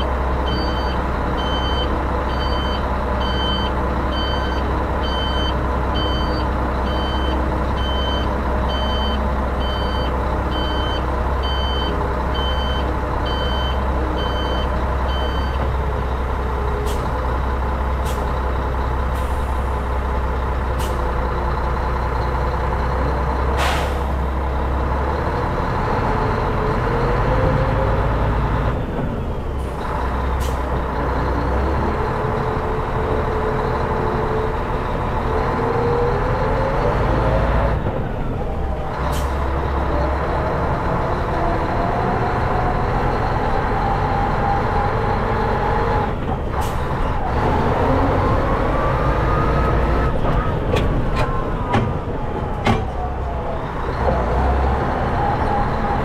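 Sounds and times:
reversing alarm beeping: 0.0s - 15.6s
diesel truck engine running: 0.0s - 56.0s.

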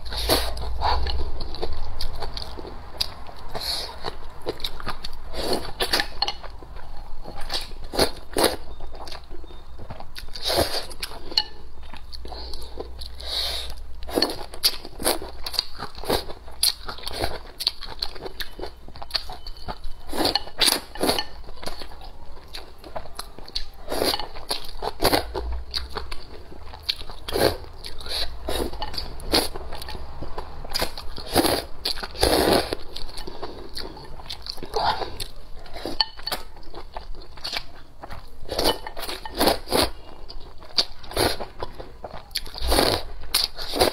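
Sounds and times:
person chewing: 0.0s - 43.9s
person slurping noodles: 32.2s - 32.8s.

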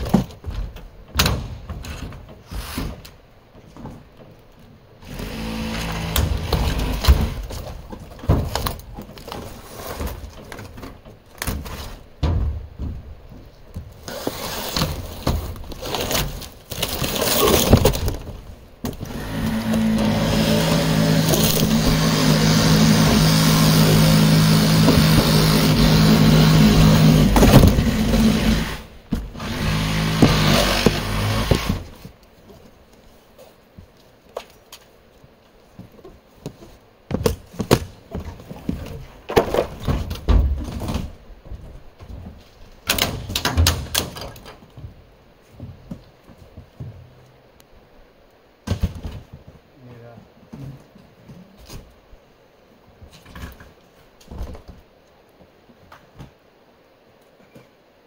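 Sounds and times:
wood panels clattering and scraping: 0.0s - 4.5s, 5.2s - 32.2s, 36.1s - 44.7s
reciprocating saw cutting: 19.0s - 31.8s.

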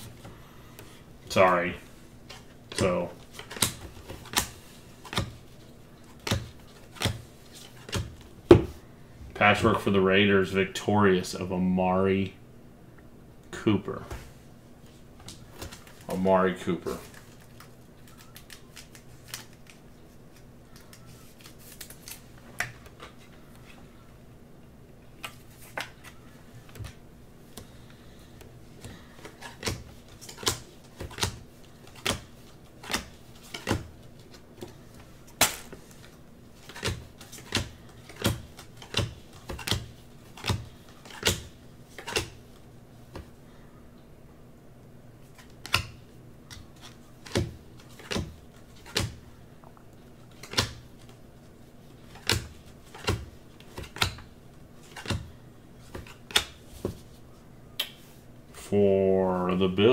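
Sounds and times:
trading cards snapping: 2.7s - 5.4s, 29.2s - 33.9s, 36.6s - 42.4s.

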